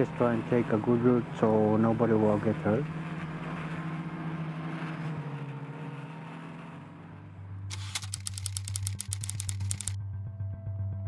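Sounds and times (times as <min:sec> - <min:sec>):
fast clattering rattle: 0:07.7 - 0:10.0.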